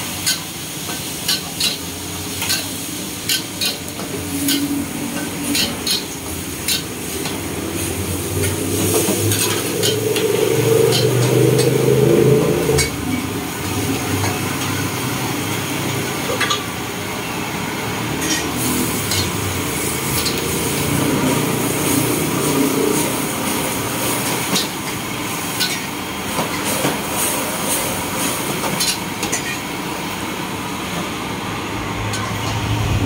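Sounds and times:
vegetables sizzling: 0:00.0 - 0:31.3
gas burner rushing: 0:00.0 - 0:33.0
metal ladle scraping in wok: 0:03.3 - 0:07.2.

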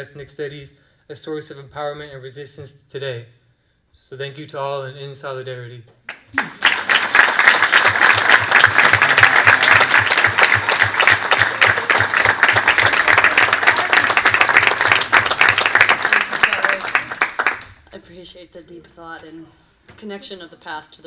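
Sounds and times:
audience applauding: 0:06.1 - 0:17.8.

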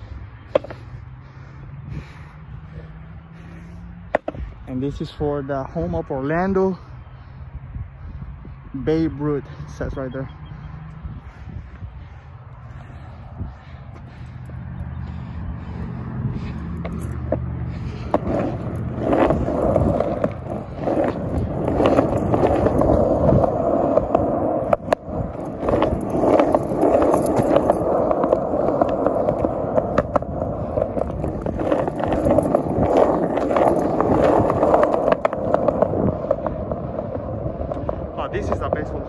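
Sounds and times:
skateboard wheels rolling on concrete: 0:00.0 - 0:39.0
sharp skateboard clicks: 0:00.5 - 0:00.9, 0:04.1 - 0:04.4, 0:16.7 - 0:38.8.

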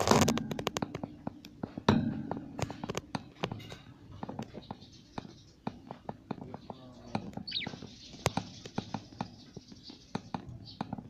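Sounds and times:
budgerigars chattering: 0:06.6 - 0:10.8.

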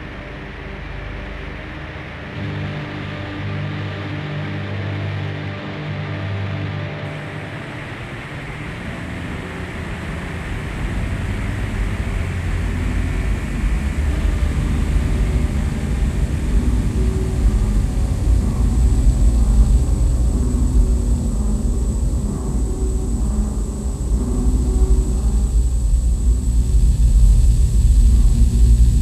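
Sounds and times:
dark droning horror music: 0:00.0 - 0:29.0
steady hiss: 0:07.1 - 0:29.0.

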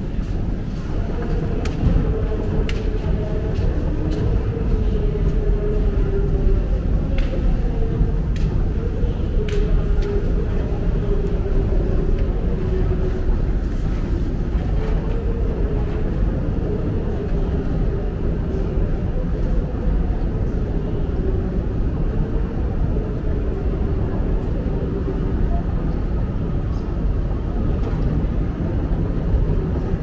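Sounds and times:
machinery hum: 0:00.0 - 0:30.0.

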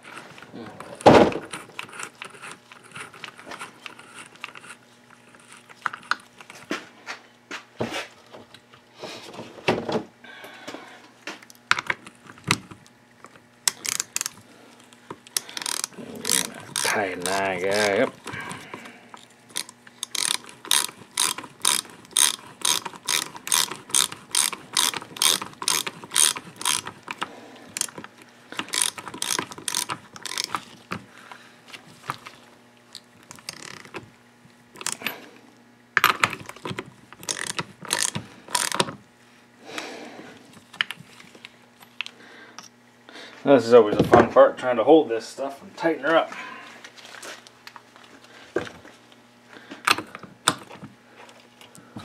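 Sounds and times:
socket ratchet wrench clicking: 0:13.7 - 0:14.4, 0:15.3 - 0:18.2, 0:19.5 - 0:28.0, 0:28.6 - 0:30.6, 0:36.1 - 0:38.9.

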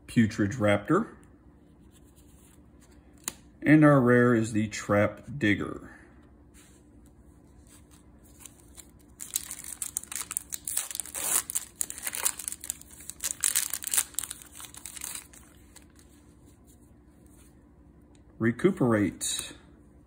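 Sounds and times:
plastic wrapper tearing and crinkling: 0:08.3 - 0:16.0.

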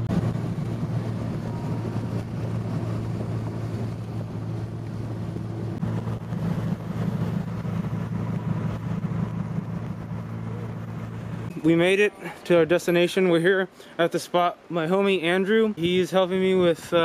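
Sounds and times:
car engine droning: 0:00.0 - 0:12.4
road and wind noise: 0:00.0 - 0:12.8.

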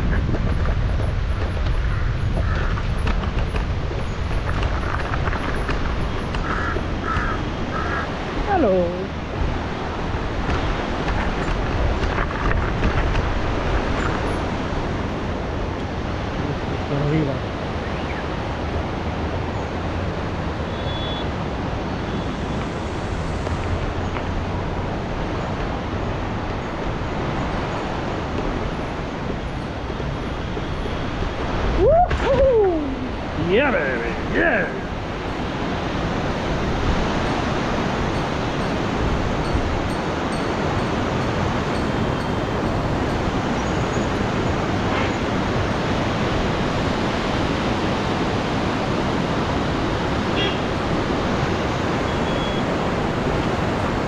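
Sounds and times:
bike tyres rolling over ground: 0:00.0 - 0:07.4
wind buffeting microphone: 0:00.0 - 0:20.7, 0:21.3 - 0:54.0.

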